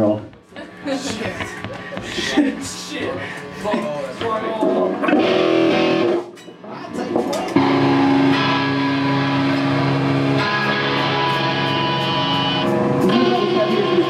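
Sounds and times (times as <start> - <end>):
electric guitar chords ringing: 4.7 - 6.3, 7.6 - 14.0.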